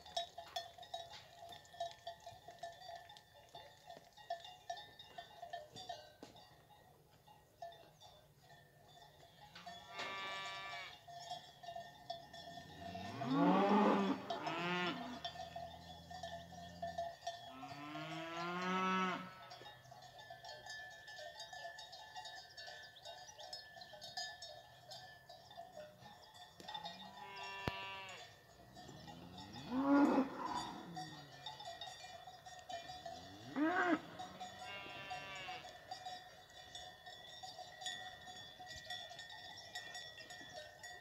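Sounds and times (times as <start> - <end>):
cows mooing: 9.6 - 11.0, 12.3 - 16.8, 17.5 - 19.6, 26.8 - 31.5, 33.1 - 35.8.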